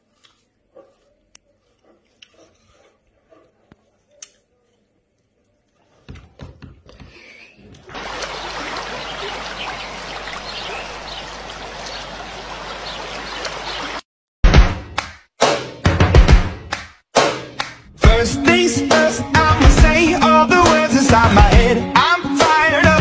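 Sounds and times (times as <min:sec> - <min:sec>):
dog wading through stream: 0:07.9 - 0:14.0.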